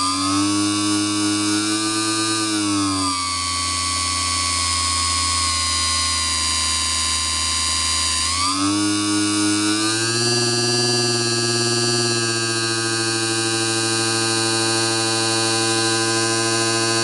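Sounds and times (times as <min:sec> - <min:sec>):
motor spindle whining: 0:00.0 - 0:17.0.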